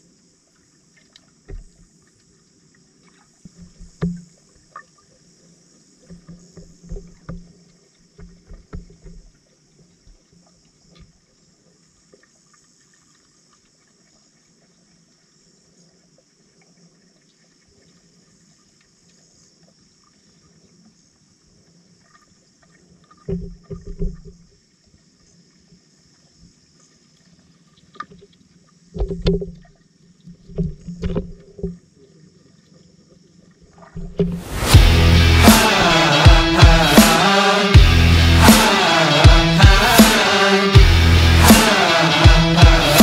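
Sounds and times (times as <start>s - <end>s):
faint steady hiss: 0.0s - 23.5s, 24.2s - 34.8s
muffled underwater knocks: 3.5s - 4.4s, 6.0s - 9.3s, 28.9s - 29.7s.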